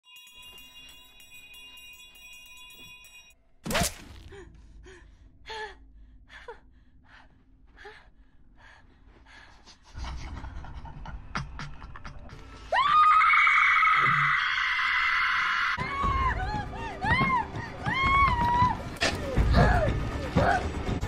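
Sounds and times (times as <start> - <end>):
panicked breaths and whimpers: 4.2 - 12.7, 15.9 - 21.0.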